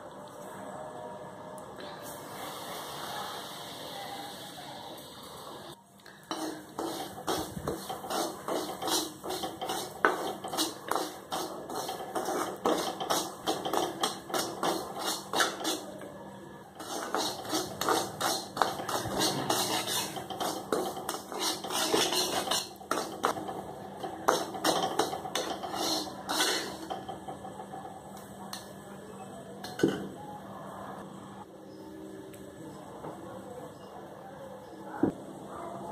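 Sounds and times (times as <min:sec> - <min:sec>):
metal spatula scraping a wok: 0:06.3 - 0:16.0, 0:16.8 - 0:27.5.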